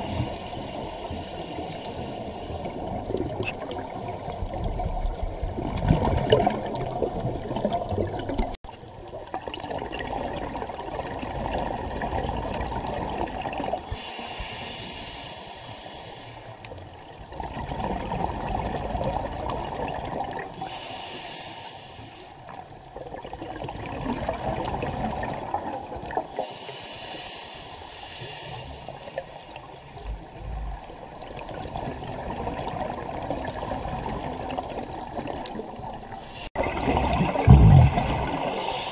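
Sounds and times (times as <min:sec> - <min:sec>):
regulator inhalation hiss: 0:13.9 - 0:16.6, 0:20.6 - 0:22.4, 0:26.4 - 0:29.6, 0:38.5 - 0:38.9
bubbling exhalation: 0:36.6 - 0:38.7.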